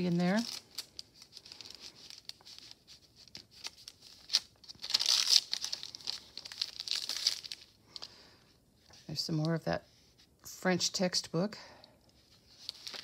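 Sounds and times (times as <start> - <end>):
paper rustling and crinkling: 0.0 - 8.1, 12.2 - 13.0.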